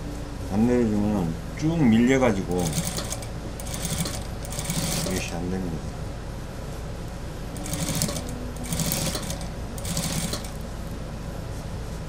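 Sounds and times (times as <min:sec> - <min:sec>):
industrial sewing machine stitching: 0:02.5 - 0:05.4, 0:07.6 - 0:10.6.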